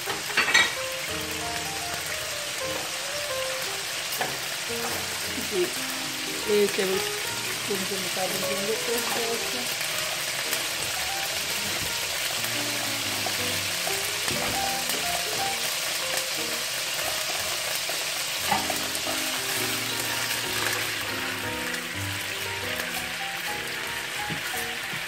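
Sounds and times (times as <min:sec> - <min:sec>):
spices sizzling in hot oil: 0:00.0 - 0:25.0
soft background music: 0:00.1 - 0:25.0
spatula stirring pan: 0:04.0 - 0:05.8, 0:06.4 - 0:25.0.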